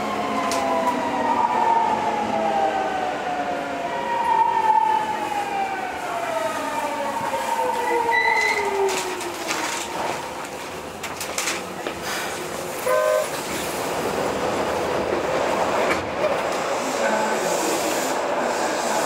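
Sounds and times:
running train rumble: 0:05.5 - 0:19.0.

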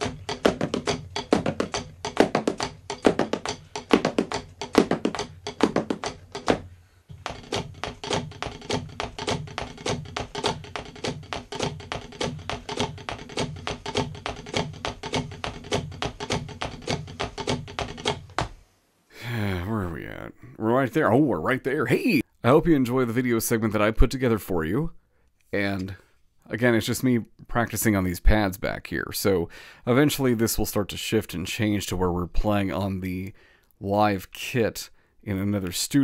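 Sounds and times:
drumsticks tapping practice pads: 0:00.0 - 0:18.6.

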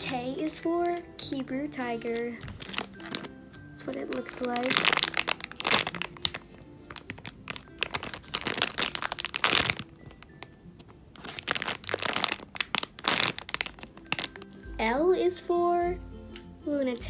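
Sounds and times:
quiet background music: 0:00.0 - 0:17.0
plastic bag crinkling: 0:02.0 - 0:14.5.

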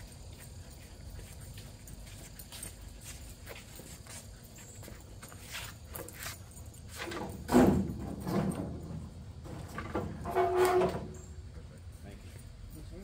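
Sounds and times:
metal scraping and shifting: 0:06.8 - 0:11.4.

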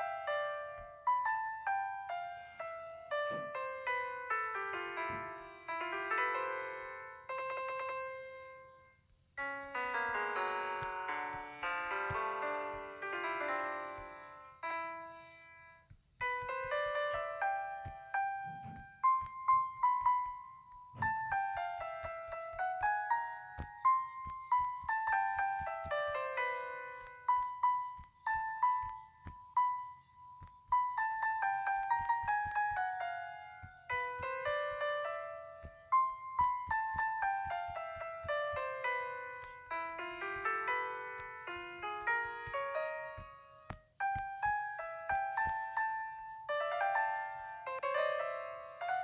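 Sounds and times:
piano music: 0:00.0 - 0:49.0.

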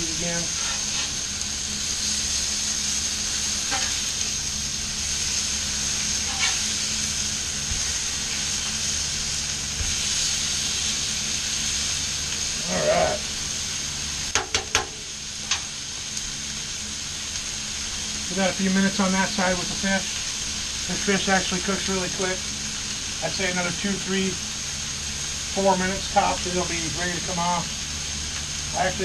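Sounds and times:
food sizzling on a griddle: 0:00.0 - 0:29.0
metal spatulas tapping griddle: 0:14.3 - 0:15.0.

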